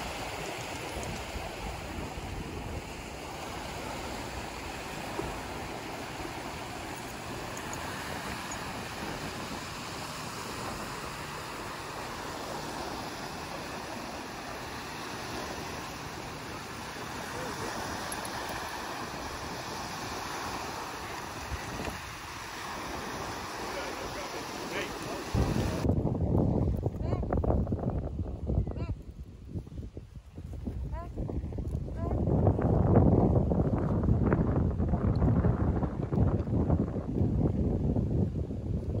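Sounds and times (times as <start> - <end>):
waves washing on sandy beach: 0.0 - 27.4
wind buffeting microphone: 0.0 - 39.0.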